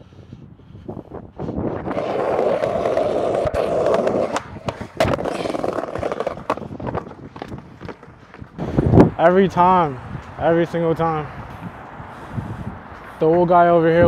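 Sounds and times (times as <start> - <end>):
skateboard landing: 1.8 - 8.5
skateboard wheels rolling on brick: 1.8 - 8.6
skateboard tail pop: 3.4 - 7.6.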